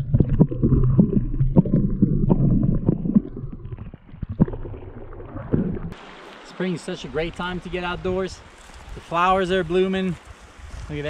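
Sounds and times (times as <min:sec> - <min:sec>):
muffled underwater rumble: 0:00.0 - 0:06.0
sharp underwater knocks and clicks: 0:00.0 - 0:06.0.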